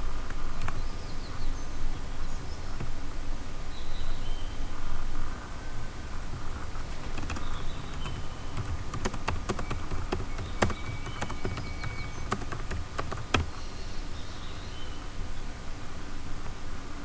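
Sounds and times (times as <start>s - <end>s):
keyboard typing clicks: 7.0s - 13.6s.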